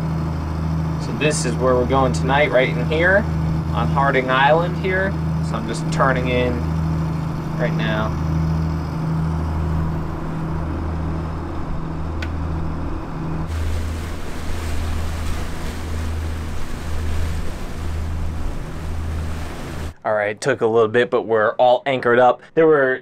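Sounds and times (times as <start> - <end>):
boat engine humming: 0.0 - 20.0
wind: 0.0 - 20.0
water hiss: 13.5 - 20.0.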